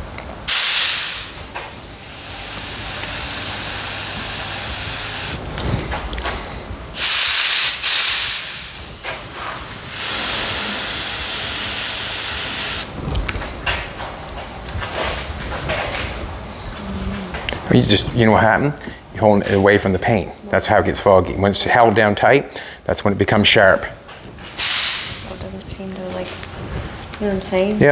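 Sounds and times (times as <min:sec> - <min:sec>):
paint spray gun hissing: 0:00.5 - 0:05.4, 0:06.9 - 0:12.9, 0:24.6 - 0:25.4.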